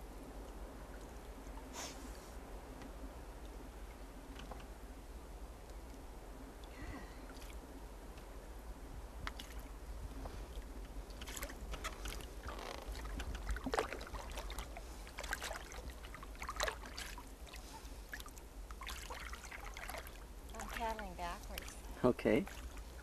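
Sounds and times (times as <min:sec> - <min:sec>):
low steady rumble: 0:00.0 - 0:23.0
paddle splashing water: 0:09.2 - 0:23.0.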